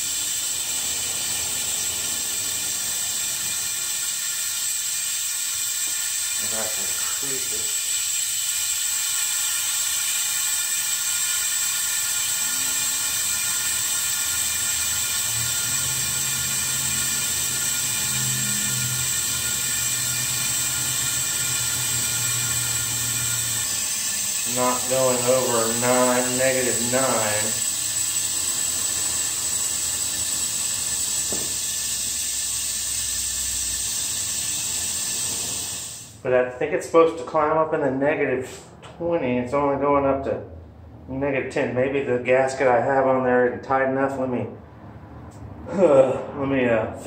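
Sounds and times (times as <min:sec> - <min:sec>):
compressed air hissing: 0:00.0 - 0:36.2.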